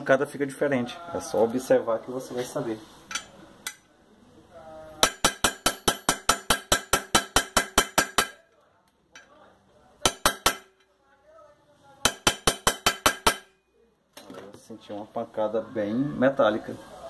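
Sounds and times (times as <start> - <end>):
hammer tapping on metal: 5.0 - 8.4, 10.0 - 10.9, 12.0 - 13.6.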